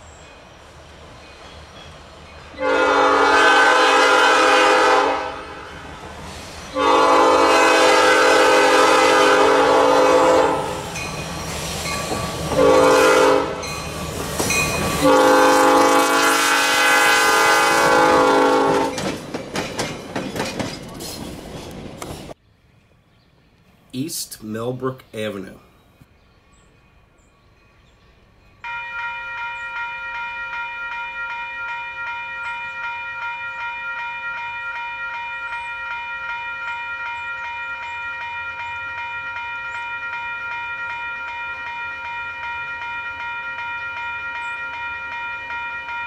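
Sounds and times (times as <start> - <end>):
train rumbling: 0.0 - 23.8
locomotive horn blasts: 2.6 - 5.8, 6.7 - 10.8, 12.6 - 13.6, 15.0 - 19.0.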